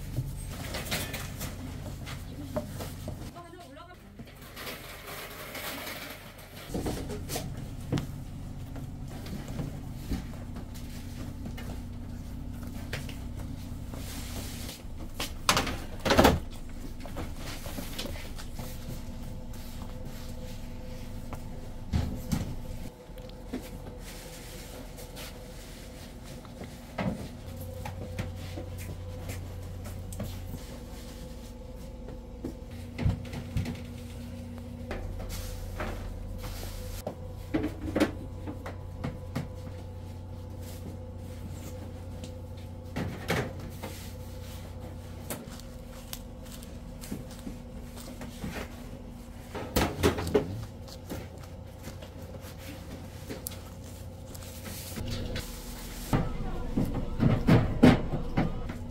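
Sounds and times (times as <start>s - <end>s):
steady machine hum: 6.6s - 58.9s.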